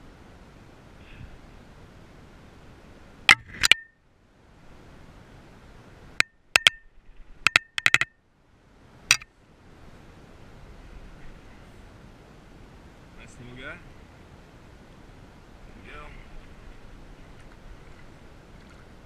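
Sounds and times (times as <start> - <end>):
small hard tackle clicking: 6.2 - 6.8, 7.4 - 8.1.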